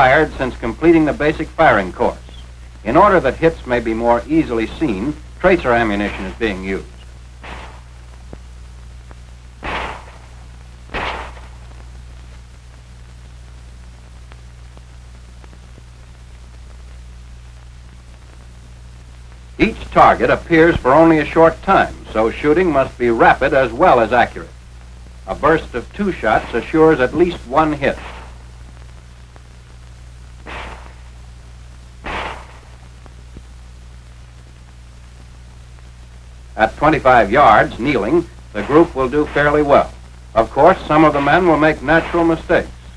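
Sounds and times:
old film soundtrack hum and hiss: 0.0 - 42.9
pistol shots: 7.4 - 8.0, 9.6 - 11.8, 28.0 - 28.4, 30.5 - 31.2, 32.0 - 32.9.

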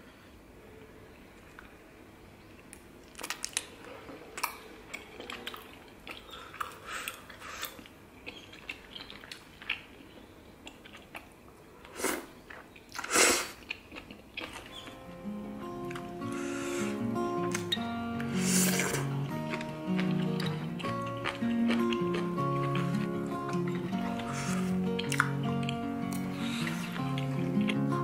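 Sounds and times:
chewing crisp bean sprouts: 3.1 - 15.0, 17.4 - 27.9.

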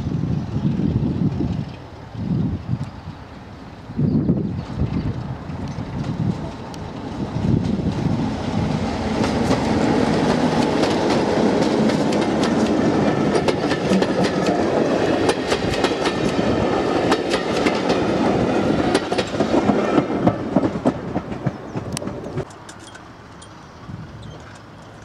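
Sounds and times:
diesel locomotive passing: 0.0 - 25.0
wheels clicking over rail joints: 9.0 - 25.0.

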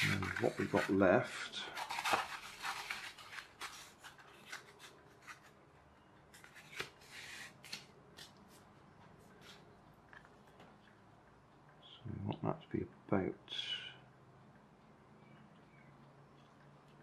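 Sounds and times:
foam tray rustling and scraping: 0.0 - 1.1.

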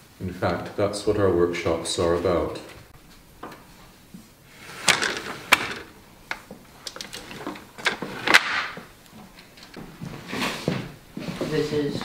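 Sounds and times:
wooden loom knocks and clacks: 4.8 - 8.8.

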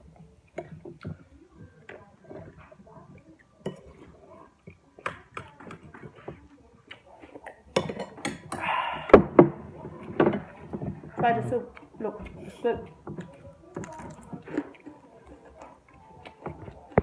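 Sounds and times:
chewing: 0.0 - 17.0
cutlery clinking on plates: 3.6 - 6.4, 7.3 - 11.0.

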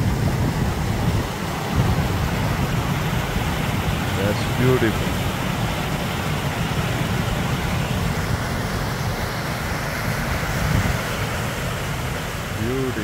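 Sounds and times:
stream rushing: 0.0 - 13.0
wind buffeting microphone: 0.0 - 13.0.

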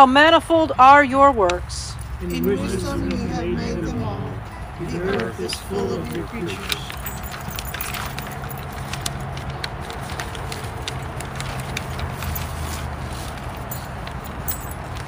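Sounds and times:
paper clicks and rustles: 5.1 - 15.0
dog tags jingling: 6.6 - 9.3, 13.6 - 15.0.

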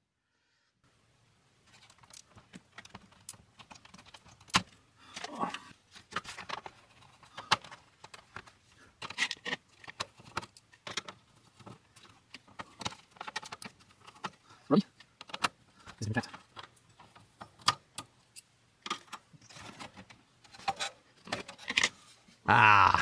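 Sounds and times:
screwdriver metallic clicks and scrapes: 20.4 - 22.0.

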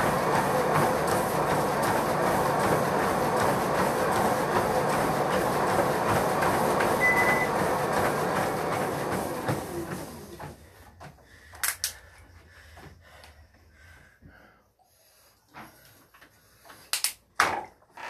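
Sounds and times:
treadmill belt and motor: 0.0 - 16.9
short beep: 7.0 - 7.5.

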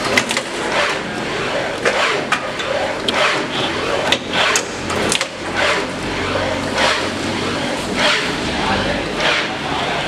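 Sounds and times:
low machine hum: 0.0 - 10.0
shelling machine whooshing cycle: 0.0 - 10.0
sharp mechanical clicks: 4.1 - 5.4.

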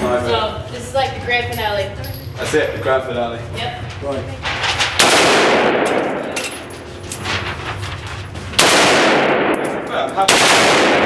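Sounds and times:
automatic rifle firing bursts: 8.6 - 9.6, 10.3 - 11.0.

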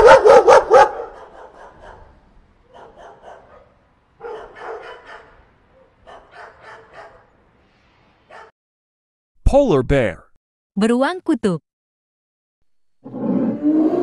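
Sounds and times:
dog barking and yapping: 0.0 - 7.3, 8.3 - 8.5.

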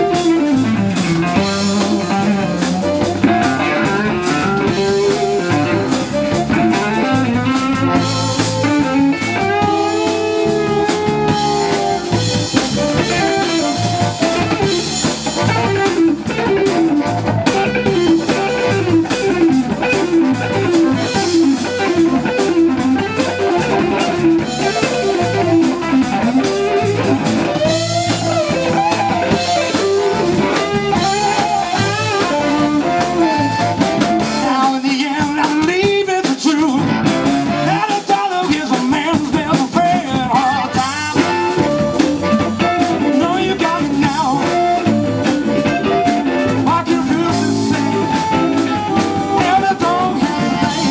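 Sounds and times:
drum kit: 0.0 - 50.9
electric bass: 0.0 - 50.9
electric guitar: 0.0 - 50.9
harmonica: 23.6 - 34.6, 40.4 - 50.9.

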